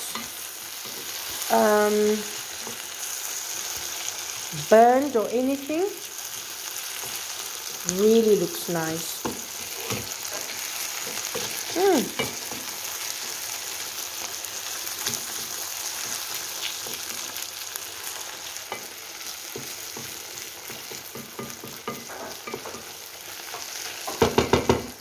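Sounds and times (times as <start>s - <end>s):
vegetables sizzling in oil: 0.0s - 25.0s
wooden spoon scraping a pan: 9.2s - 13.4s.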